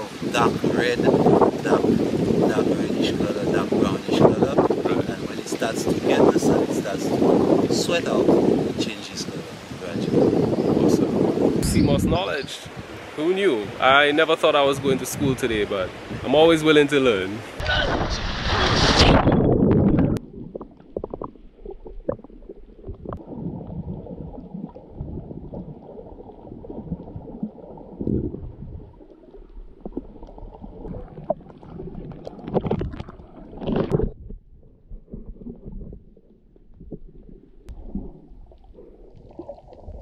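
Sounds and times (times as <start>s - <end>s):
loud splash into water: 17.6s - 20.2s
muffled underwater sea rumble: 17.6s - 40.0s.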